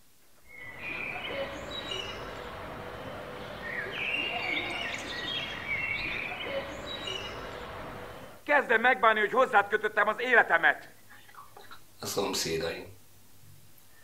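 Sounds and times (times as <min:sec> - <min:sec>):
outdoor background hiss: 0:00.0 - 0:14.0
birds chirping: 0:00.4 - 0:08.4.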